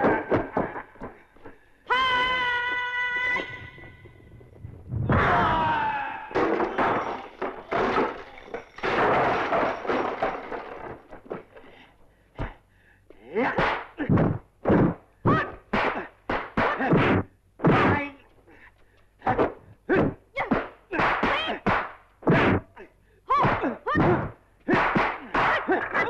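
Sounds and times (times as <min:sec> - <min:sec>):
punch and kick impacts: 0:13.4 - 0:18.0, 0:19.3 - 0:22.6, 0:23.4 - 0:25.8.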